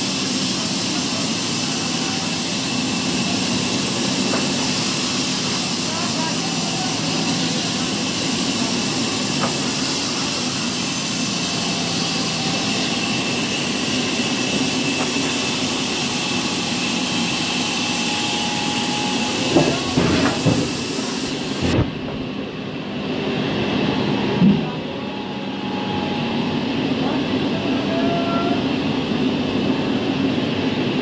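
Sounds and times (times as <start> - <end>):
band saw cutting log: 0.0 - 21.9.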